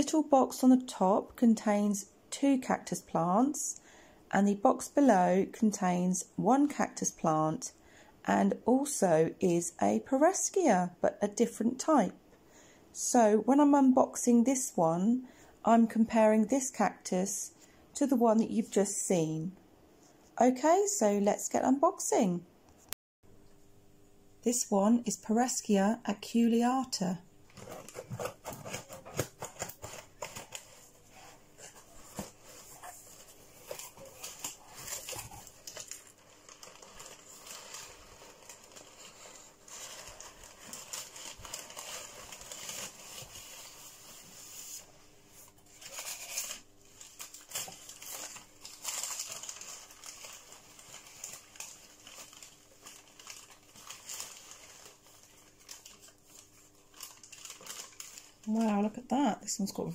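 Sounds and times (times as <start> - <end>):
newspaper rustling and crinkling: 27.5 - 59.8.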